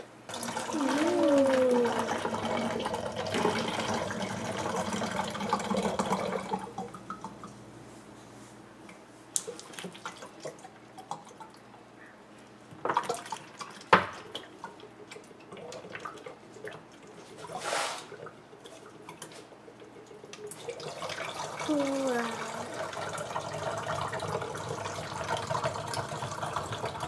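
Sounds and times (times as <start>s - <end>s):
water gurgling and dripping: 0.3s - 7.6s, 12.9s - 27.0s.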